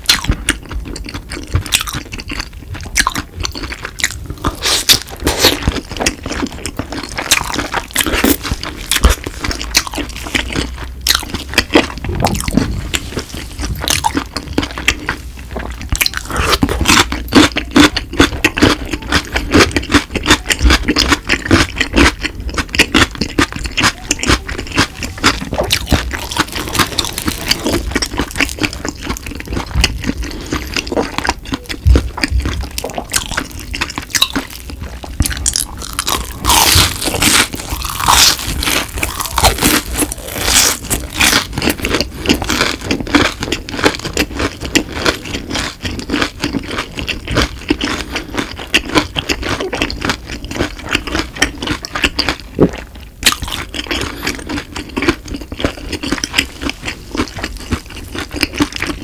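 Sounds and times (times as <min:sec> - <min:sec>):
wet sticky mouth sounds: 0:00.0 - 0:44.9
chewing crispy fried chicken: 0:00.0 - 0:59.0.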